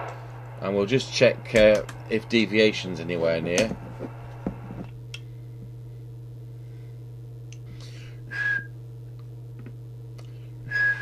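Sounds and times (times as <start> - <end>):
steady low hum: 0.0 - 11.0
short high whistle: 8.3 - 8.7, 10.7 - 11.0.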